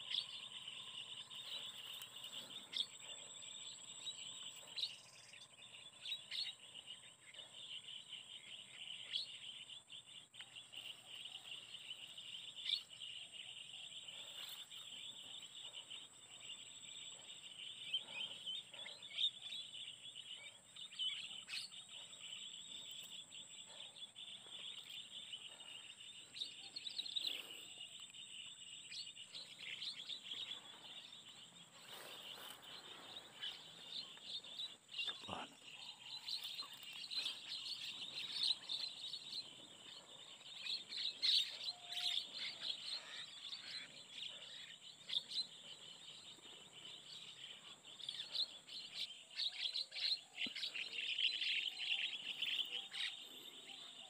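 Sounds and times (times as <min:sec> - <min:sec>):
flock of birds chirping: 0:00.0 - 0:54.0.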